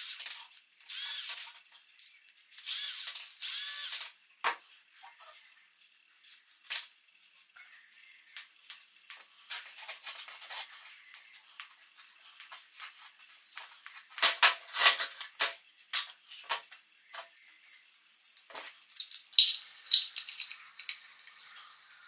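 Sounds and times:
small metal parts clinking: 0.0 - 4.2, 6.2 - 7.1, 9.0 - 21.1.

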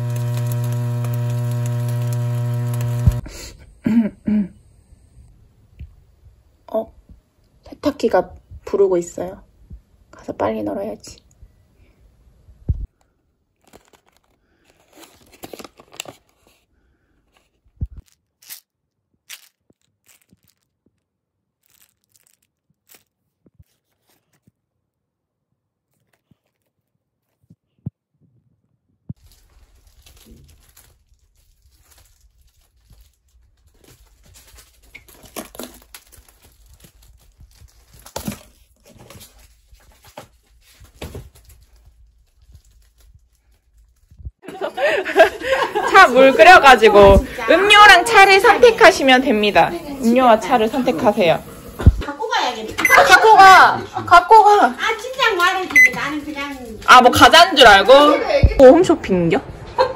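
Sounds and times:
paper bag crinkling: 0.0 - 3.3, 13.6 - 16.7, 17.3 - 24.6, 25.8 - 27.4, 29.2 - 44.2, 54.8 - 57.6.

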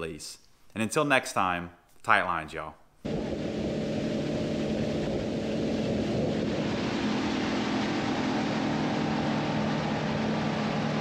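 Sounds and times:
boat motor running: 3.0 - 11.0
wind on microphone: 3.0 - 11.0.

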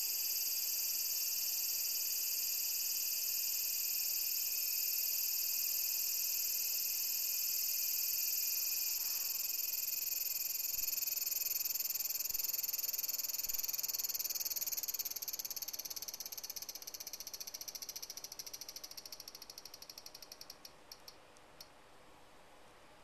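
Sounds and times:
cicada buzzing: 8.6 - 20.6.

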